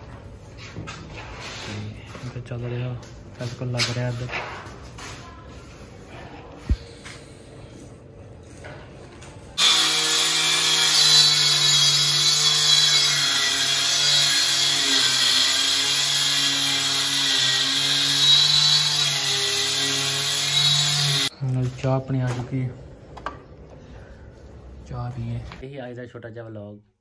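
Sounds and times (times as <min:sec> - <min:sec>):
circular saw cutting wood: 0:09.6 - 0:21.3.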